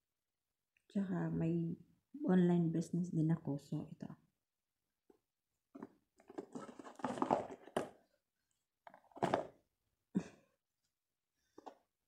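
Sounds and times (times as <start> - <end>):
cardboard lid scraping and rustling: 5.8 - 7.9
handling noises: 5.8 - 8.0, 8.9 - 9.5.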